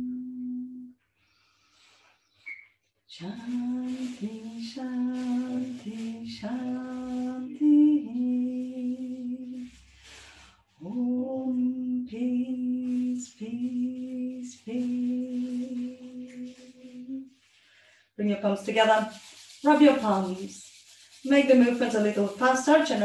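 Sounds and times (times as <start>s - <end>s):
woman chanting: 3.1s - 9.8s, 10.8s - 17.3s, 18.2s - 23.0s.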